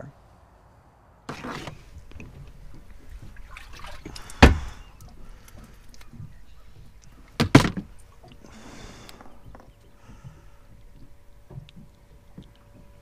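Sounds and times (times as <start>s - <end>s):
net swishing through water: 1.3s - 4.9s
water splashing and dripping: 1.9s - 13.0s
hard knocks on fibreglass boat: 4.3s - 4.8s, 6.1s - 8.0s.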